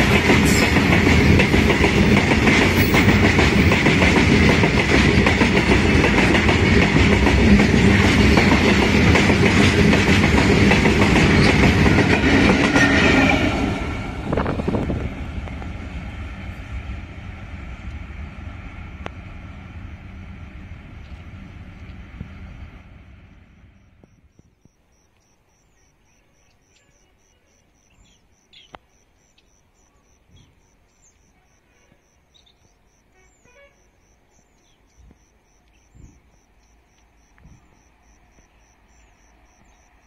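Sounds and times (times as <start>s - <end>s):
freight train wheels clattering: 0.0s - 16.0s.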